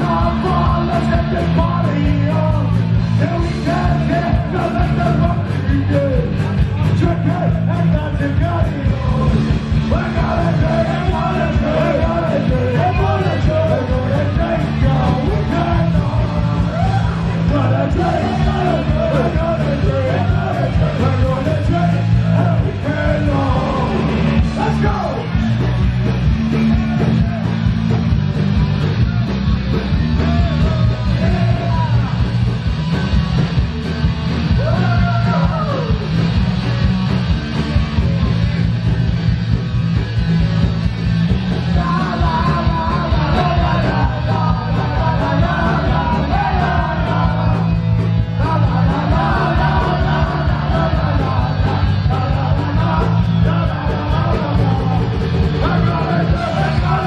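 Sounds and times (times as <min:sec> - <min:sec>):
person singing lead vocal: 0:00.0 - 0:25.5, 0:30.2 - 0:32.3, 0:34.5 - 0:36.2, 0:41.6 - 0:57.0
punk rock band playing: 0:00.0 - 0:57.0.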